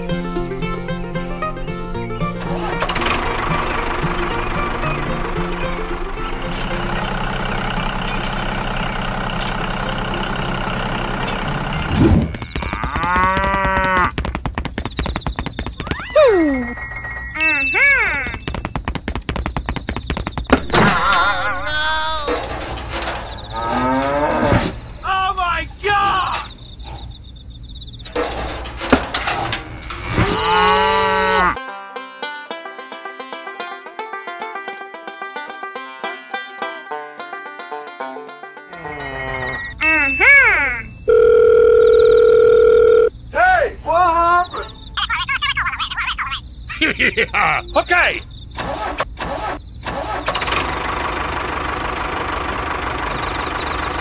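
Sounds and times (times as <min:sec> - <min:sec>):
plucked string music: 0:00.0 - 0:08.7, 0:31.6 - 0:39.0
tractor engine running: 0:00.0 - 0:23.8, 0:44.8 - 0:54.0
cow mooing: 0:12.3 - 0:14.1, 0:23.5 - 0:24.6, 0:30.3 - 0:31.6.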